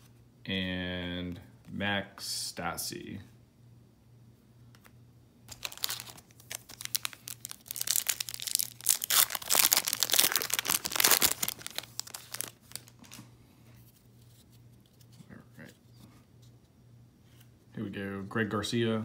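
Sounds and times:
wrapper tearing and crinkling: 5.5s - 13.2s.

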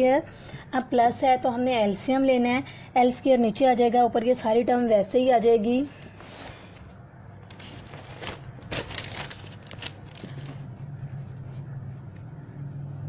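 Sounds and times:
low steady hum: 0.0s - 13.0s
notebook page rustling: 6.0s - 11.6s.

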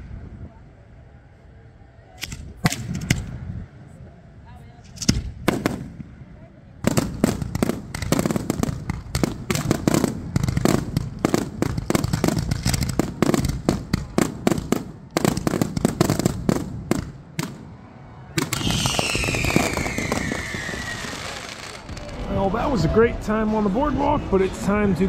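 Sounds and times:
fireworks bangs and crackling: 4.9s - 23.6s
firework whistle falling in pitch: 18.6s - 23.0s.

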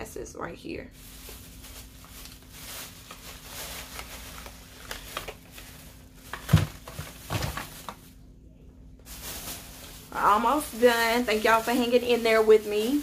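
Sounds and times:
packaging rustling and clicking: 1.3s - 8.1s.

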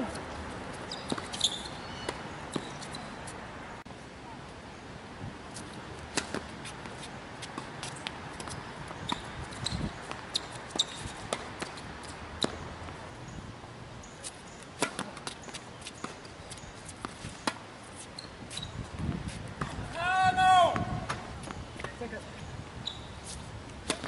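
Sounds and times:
racquets striking tennis ball: 0.8s - 3.3s, 6.1s - 12.7s, 14.2s - 16.3s, 23.3s - 24.0s
tennis ball bouncing: 0.9s - 3.3s, 6.1s - 13.0s, 14.8s - 16.3s, 23.7s - 24.0s.

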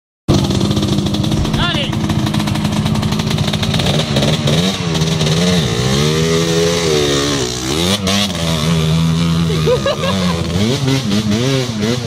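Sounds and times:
motocross bike engine revving: 0.3s - 12.0s.

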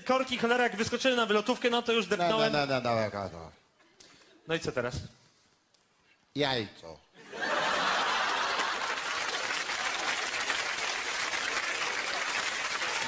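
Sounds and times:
audience applauding: 7.4s - 13.0s.

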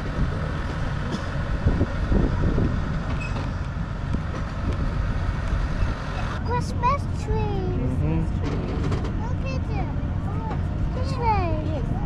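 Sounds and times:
tractor engine running: 0.0s - 7.7s.

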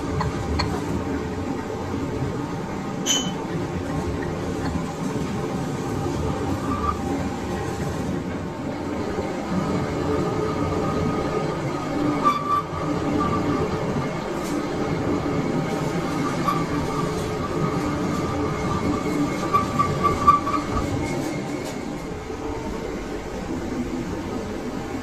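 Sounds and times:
lathe rumbling: 0.0s - 25.0s
thin high squeal: 3.0s - 3.4s.

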